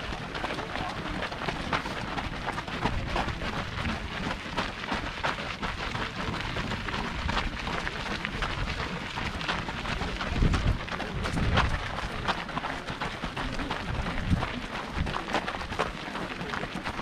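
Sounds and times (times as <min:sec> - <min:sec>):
running footsteps: 0:00.0 - 0:17.0
wind on microphone: 0:10.0 - 0:12.2.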